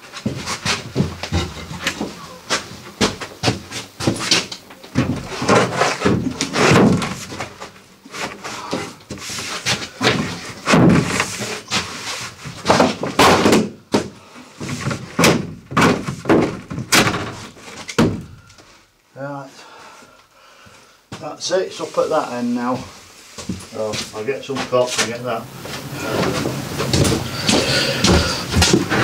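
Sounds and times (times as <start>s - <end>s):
wooden panel knocking and thudding: 5.0s - 7.5s, 10.1s - 11.3s, 12.6s - 18.4s, 26.3s - 29.0s.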